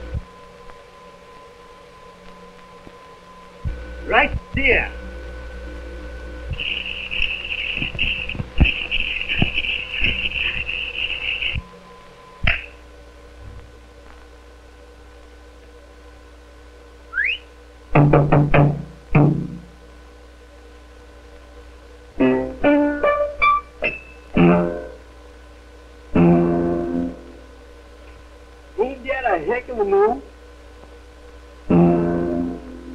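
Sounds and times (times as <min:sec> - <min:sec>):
steady hum: 0:00.0 - 0:32.9
rising whistle-like glide: 0:17.1 - 0:17.5
shrill warbling tone: 0:17.1 - 0:17.5.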